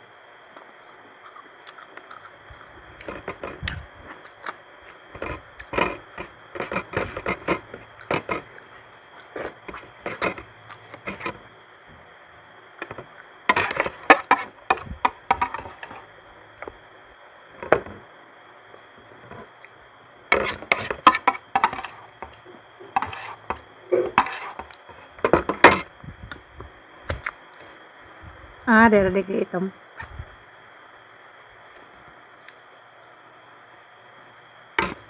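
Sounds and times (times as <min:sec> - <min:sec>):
chewing: 0:01.2 - 0:05.7, 0:08.0 - 0:11.1
spoon tapping plates: 0:12.8 - 0:16.0, 0:20.4 - 0:22.4.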